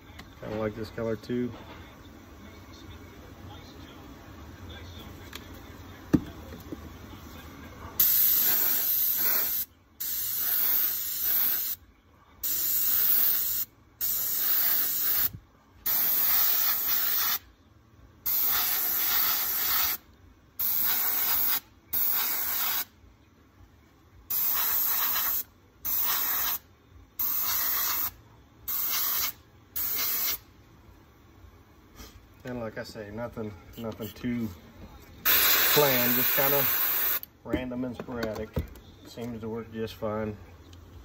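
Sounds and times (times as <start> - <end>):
airbrush hissing bursts: 8.0 - 11.8, 12.4 - 17.5, 18.3 - 20.0, 20.6 - 22.9, 24.3 - 26.6, 27.2 - 30.5, 35.2 - 37.2.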